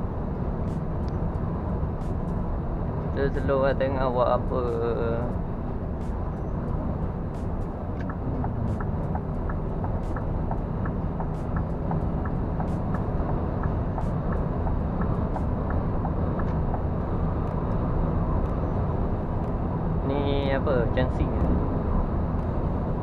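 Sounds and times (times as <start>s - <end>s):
truck engine and road drone: 0.0s - 23.0s
turn signal ticking: 4.5s - 20.0s.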